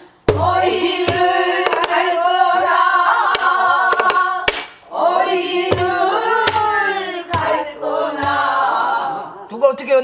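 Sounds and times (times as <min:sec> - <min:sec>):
barrel drum struck with stick: 0:00.3 - 0:02.0.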